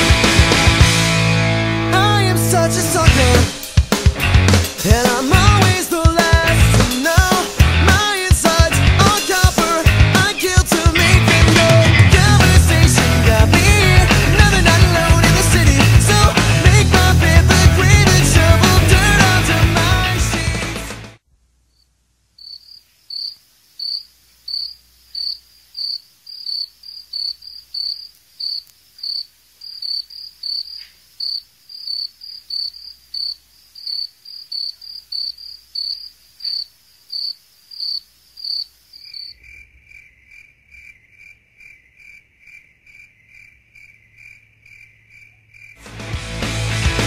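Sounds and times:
cricket chirping: 21.7 - 45.8.

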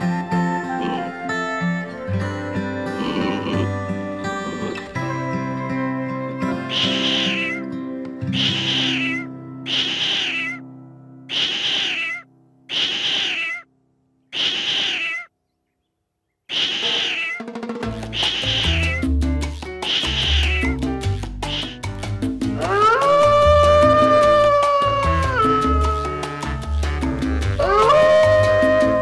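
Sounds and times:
background music: 0.0 - 11.3, 17.4 - 29.0
cat meowing: 6.6 - 7.6, 8.4 - 10.6, 11.3 - 12.2, 13.0 - 13.6, 14.5 - 15.3, 16.5 - 17.5, 18.4 - 19.0, 20.3 - 20.8.

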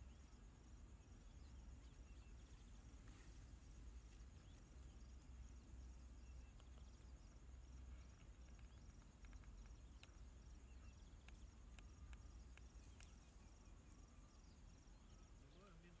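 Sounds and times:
insects chirping: 0.0 - 16.0
faint clicks: 6.4 - 7.1, 7.9 - 13.3.

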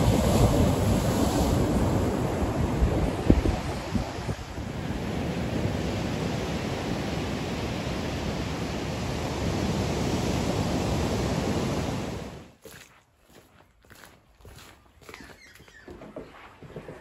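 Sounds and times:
wind buffeting microphone: 0.0 - 12.4
surf rushing: 0.0 - 12.5.

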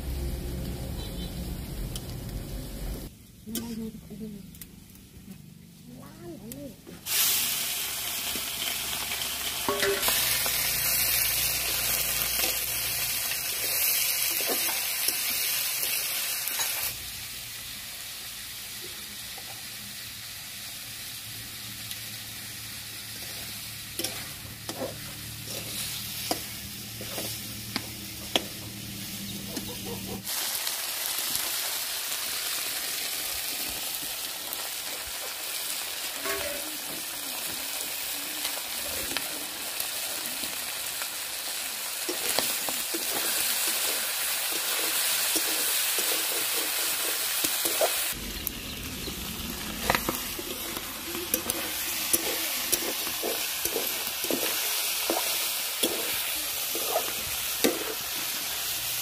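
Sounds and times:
food sizzling in hot oil: 0.0 - 3.4, 6.5 - 59.0
metal spatula scraping pan: 9.7 - 10.3, 23.2 - 28.4, 49.9 - 58.2.

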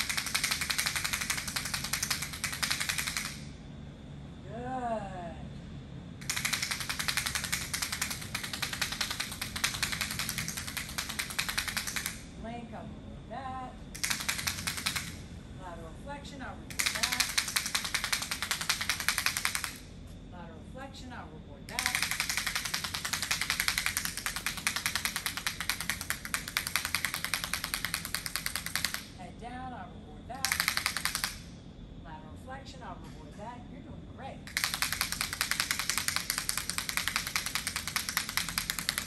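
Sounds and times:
rapid sharp clicks: 0.0 - 3.5, 6.2 - 12.3, 14.0 - 15.2, 16.7 - 19.9, 21.7 - 29.2, 30.4 - 31.5, 34.5 - 39.0.

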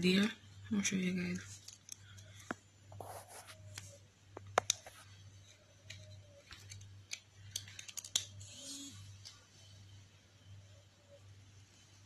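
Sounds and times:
low steady hum: 0.0 - 12.0
plastic clicks and taps: 3.7 - 4.9.

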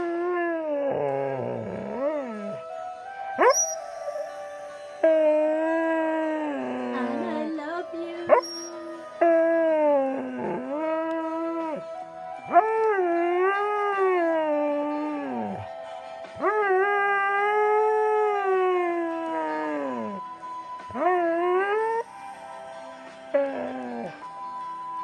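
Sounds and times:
dog howling: 0.0 - 7.5, 8.3 - 11.9, 12.5 - 15.7, 16.4 - 20.2, 23.3 - 24.2
music: 0.0 - 25.0
dog yelping: 3.4 - 4.0, 8.3 - 8.8.

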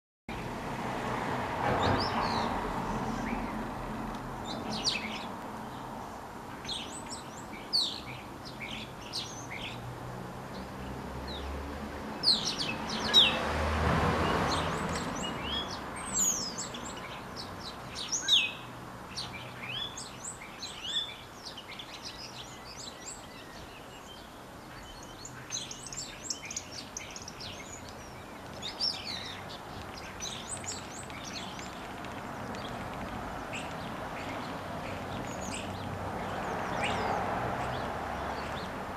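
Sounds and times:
starling singing and calling: 1.8 - 3.7, 4.4 - 9.9, 12.2 - 13.6, 14.2 - 38.8.

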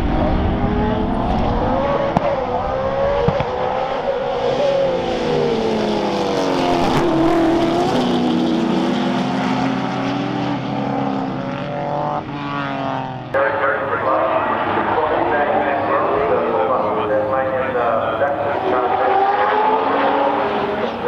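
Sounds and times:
race car engines accelerating: 0.0 - 21.0.

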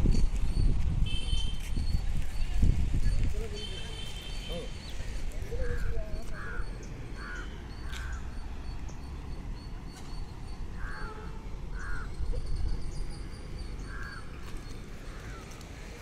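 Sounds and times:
crows cawing: 5.6 - 8.4, 10.8 - 12.2, 13.8 - 15.8.

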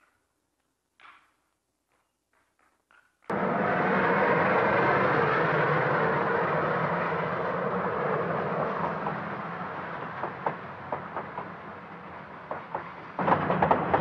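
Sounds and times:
train wheels rumbling on rails: 3.3 - 14.0.

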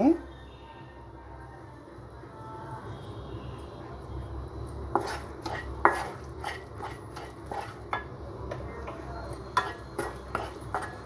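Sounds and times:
wooden spatula scraping a pan: 4.9 - 8.1, 8.9 - 11.0.

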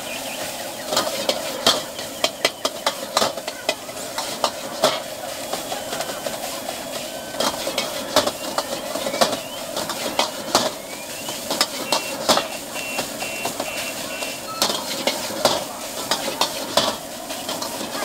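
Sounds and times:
steady hiss: 0.0 - 18.0
metal ladle scraping a wok: 0.9 - 18.0
short electronic beeps: 10.8 - 14.9.

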